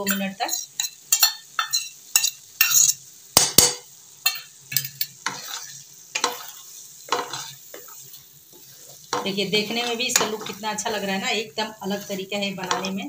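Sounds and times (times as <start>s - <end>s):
oily sauce sizzling: 0.0s - 13.0s
wooden spatula scraping a pan: 4.7s - 13.0s.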